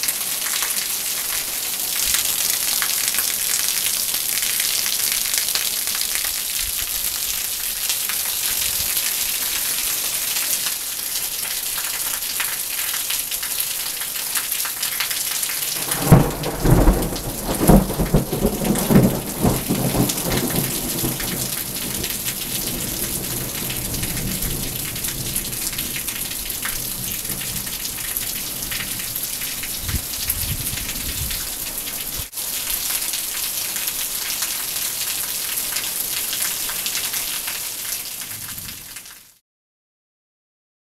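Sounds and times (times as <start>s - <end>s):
steady rain: 0.0s - 39.4s
thunder rumbling: 15.8s - 29.1s.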